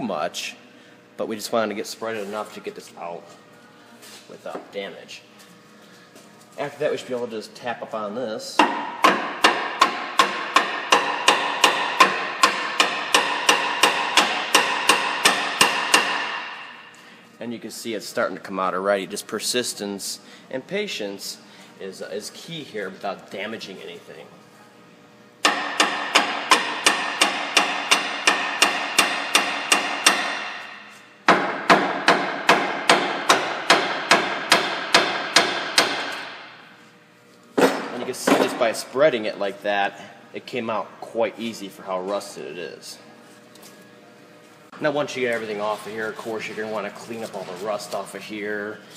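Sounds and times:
hammer tapping on metal: 8.6 - 16.3.

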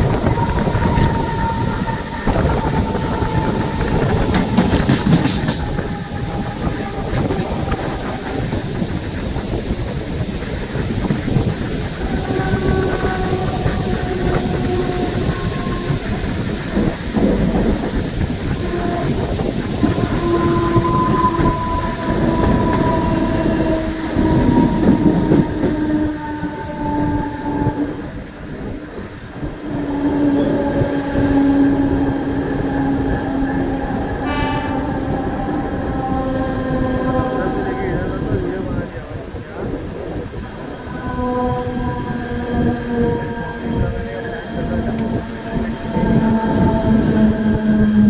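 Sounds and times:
train wheels rumbling on rails: 0.0 - 48.0
whining tones drifting in pitch: 0.0 - 48.0.

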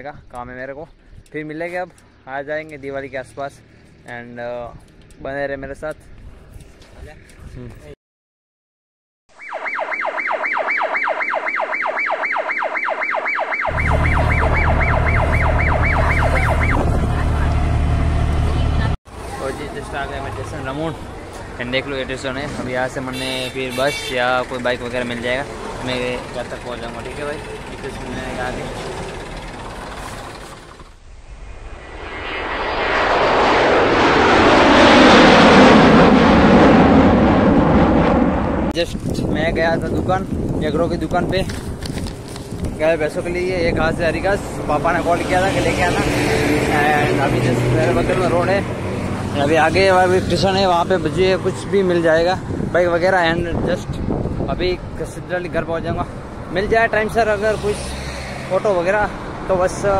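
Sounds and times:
electronic tone sweeping high to low: 9.3 - 19.0
auto-rickshaw engine droning: 13.7 - 22.4, 24.0 - 31.0
van driving heard from inside: 16.8 - 19.0.

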